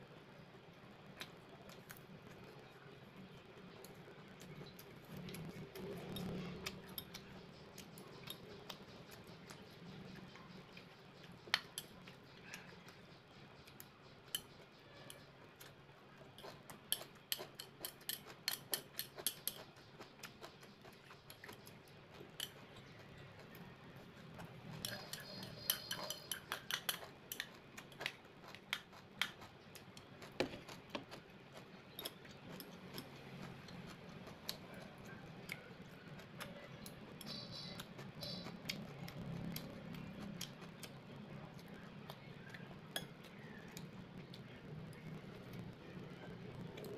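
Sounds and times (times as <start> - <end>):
chewing and mouth clicks: 0.8 - 46.9
chopsticks clicking on ceramic bowls: 24.7 - 28.1.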